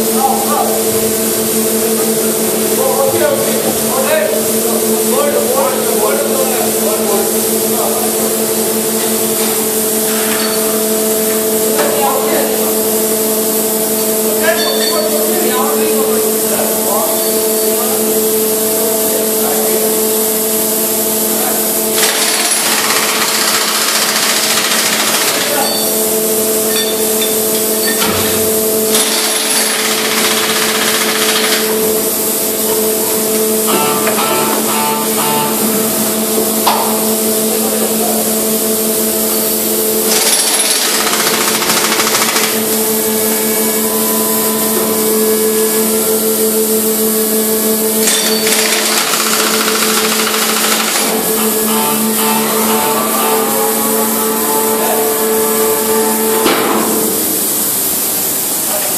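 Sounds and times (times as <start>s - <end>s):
hydraulics humming: 0.0s - 58.9s
power wrench rattling: 21.9s - 25.8s, 28.9s - 31.9s, 40.0s - 42.9s, 48.0s - 51.4s.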